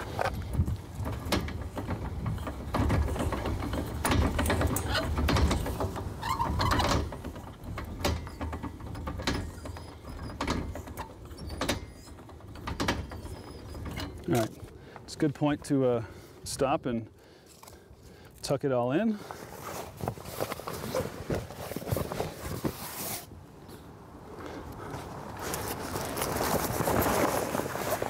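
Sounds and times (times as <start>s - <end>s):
crank and winch clicks: 0.0s - 18.5s.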